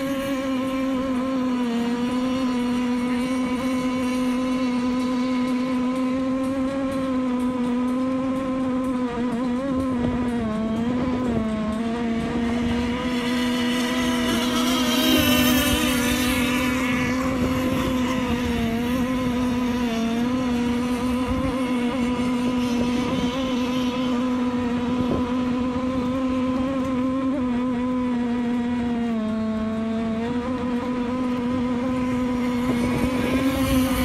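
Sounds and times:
speedboat engine running: 0.0s - 34.0s.

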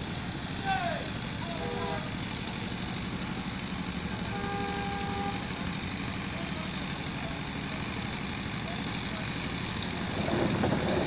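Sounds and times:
road traffic rumble: 0.0s - 11.0s
vehicle horns: 1.4s - 2.2s, 4.2s - 5.6s.

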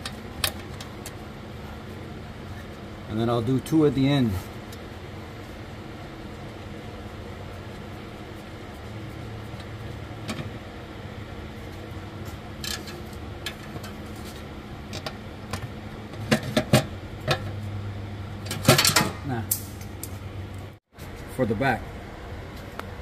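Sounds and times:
bolts clicking and tapping: 0.0s - 1.2s, 12.3s - 17.6s
background hum: 0.0s - 23.0s.

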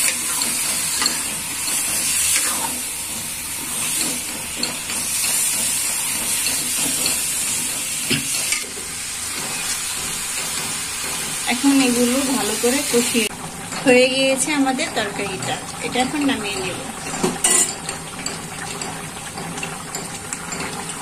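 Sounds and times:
chicken sizzling in oil: 0.0s - 21.0s.

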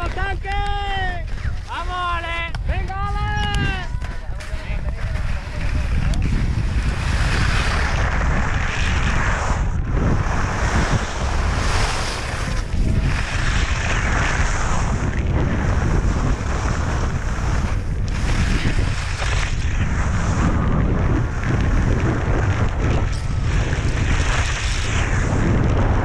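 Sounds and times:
wind buffeting microphone: 0.0s - 26.0s
skis hissing on snow: 6.6s - 15.0s, 15.6s - 20.6s, 23.4s - 25.5s.

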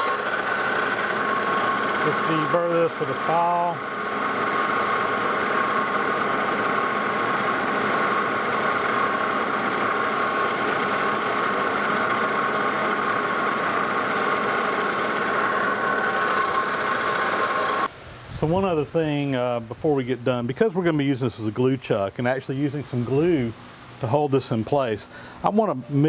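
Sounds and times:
metal lathe running: 0.0s - 17.9s
steady whine: 0.0s - 21.7s.

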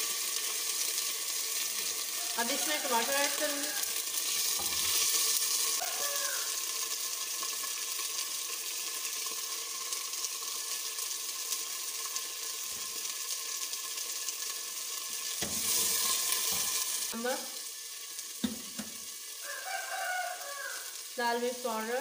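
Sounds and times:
hot oil sizzling: 0.0s - 22.0s.

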